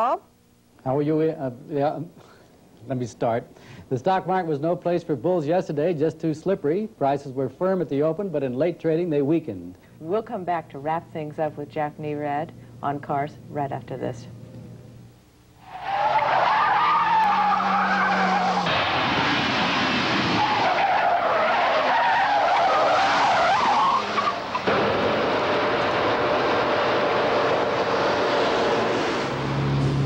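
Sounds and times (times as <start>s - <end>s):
car tyres squealing: 15.6s - 29.6s
car engine and road noise: 15.6s - 30.0s.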